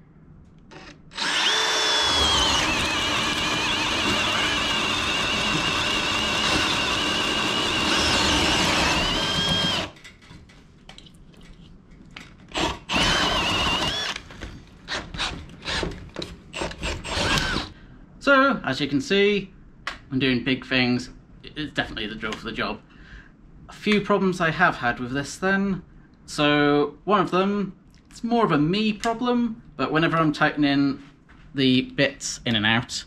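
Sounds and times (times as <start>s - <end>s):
cordless drill boring into wood: 0.7s - 10.0s, 12.5s - 14.3s, 14.9s - 15.9s, 16.6s - 17.7s.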